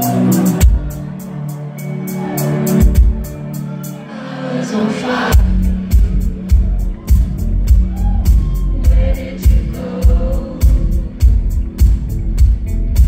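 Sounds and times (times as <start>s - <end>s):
live indie-pop band: 0.0s - 13.0s
heavy kick drum beat: 5.4s - 13.0s
woman singing: 8.8s - 11.2s.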